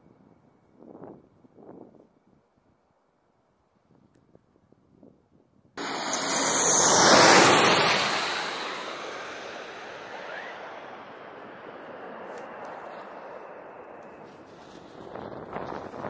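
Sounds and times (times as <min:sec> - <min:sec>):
jet engine roar: 0:05.8 - 0:16.0.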